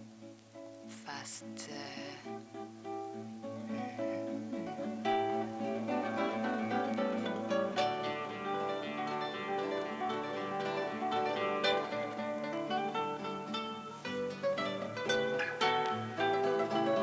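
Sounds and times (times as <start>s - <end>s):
acoustic guitar picking and strumming: 0.0s - 17.0s.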